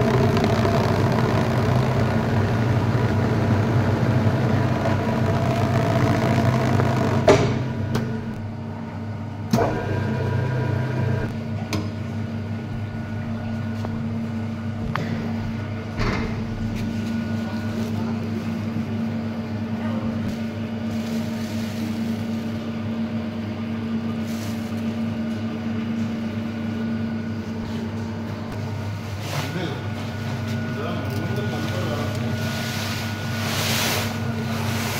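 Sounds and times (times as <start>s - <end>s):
press machine humming: 0.0s - 21.1s.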